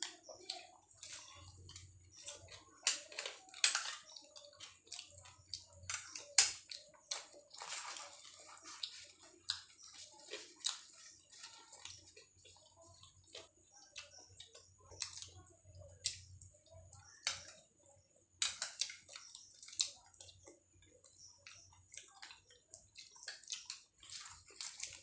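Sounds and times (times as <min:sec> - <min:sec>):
wet chewing and mouth smacks: 0:00.2 - 0:15.3, 0:18.4 - 0:25.0
puffed bread breaking: 0:05.3 - 0:12.2.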